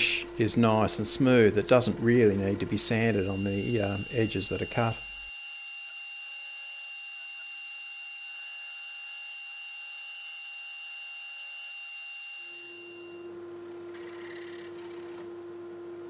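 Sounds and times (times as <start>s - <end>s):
low steady hum: 0.0s - 5.3s
scroll saw cutting wood: 1.7s - 13.2s.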